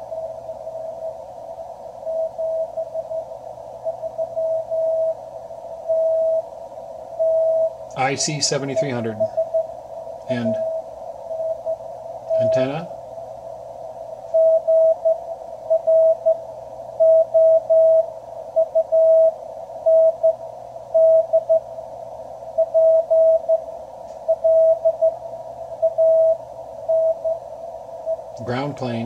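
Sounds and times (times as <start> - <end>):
radio band noise hiss: 0.0 - 15.8, 25.2 - 29.0
morse code beeping tone: 3.9 - 5.2, 7.2 - 9.7, 14.4 - 16.4, 17.0 - 20.4, 21.0 - 21.6, 22.6 - 23.6, 24.3 - 25.2, 25.8 - 27.4.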